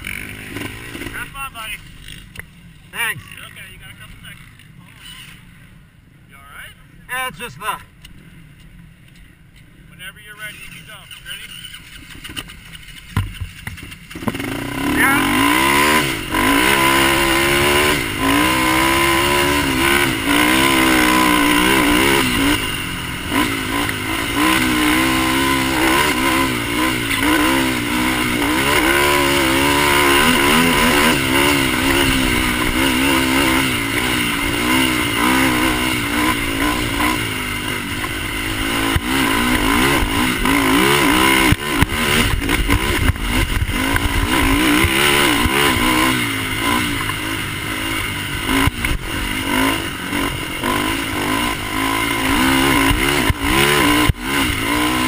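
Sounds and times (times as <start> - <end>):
quad engine revving: 0.0 - 2.4, 14.1 - 55.0
quad knocking over bumps: 12.0 - 55.0.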